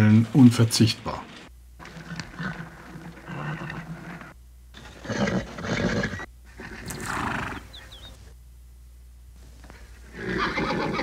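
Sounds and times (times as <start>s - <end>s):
horses vocalising: 1.8s - 8.2s, 9.7s - 11.0s.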